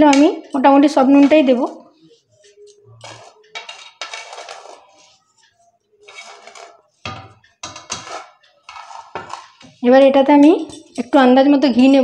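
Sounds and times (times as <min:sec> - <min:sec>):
rice scraping in steel bowl: 0:03.0 - 0:05.4, 0:06.0 - 0:09.9.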